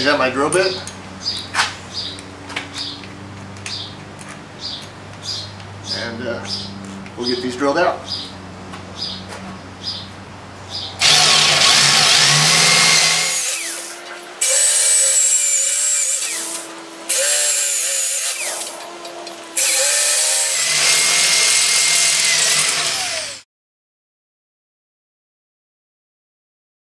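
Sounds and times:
power drill cutting steel: 11.0s - 23.5s.

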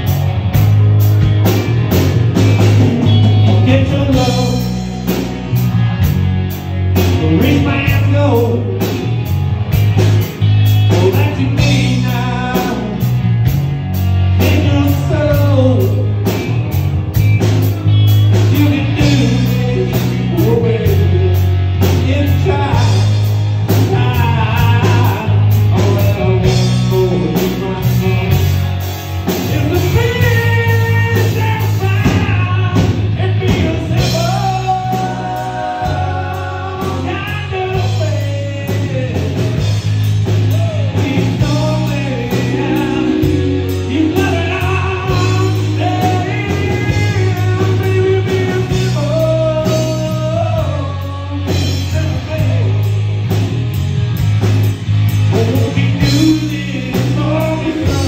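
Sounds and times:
bass guitar: 0.0s - 58.0s
drum kit with cymbal beats: 0.0s - 58.0s
electric guitars: 0.0s - 58.0s
person singing: 3.0s - 5.2s, 10.9s - 13.2s, 18.3s - 28.5s, 29.4s - 53.1s, 55.3s - 58.0s.

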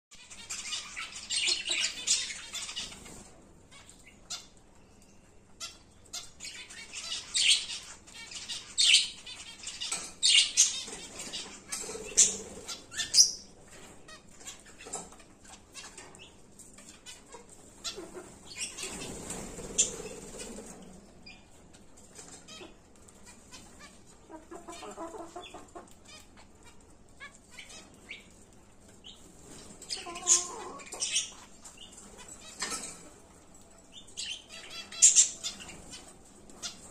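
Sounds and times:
finch calls: 0.2s - 4.6s, 5.6s - 21.4s, 29.0s - 33.0s
birds pecking in seed: 0.2s - 36.9s.

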